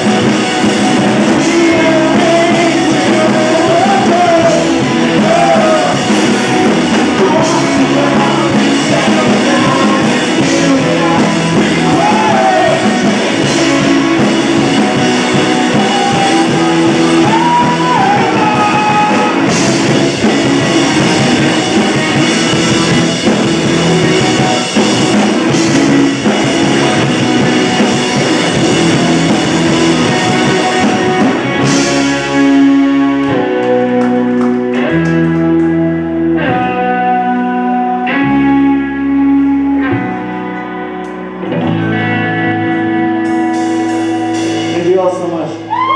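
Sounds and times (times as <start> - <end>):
strummed guitar chords: 0.0 - 45.7
live rock band playing: 0.0 - 45.9
person singing: 1.0 - 20.3.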